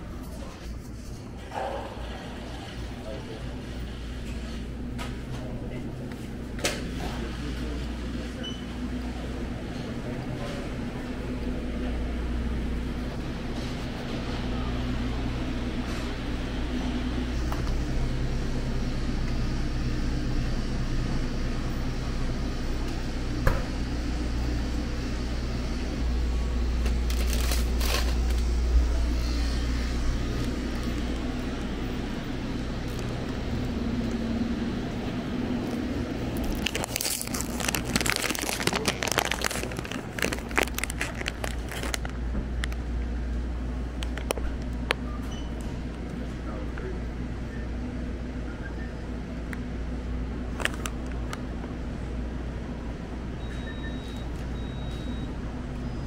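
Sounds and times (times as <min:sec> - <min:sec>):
low room hum: 0:00.0 - 0:56.0
crinkling and crackling: 0:26.8 - 0:28.5, 0:35.6 - 0:42.8.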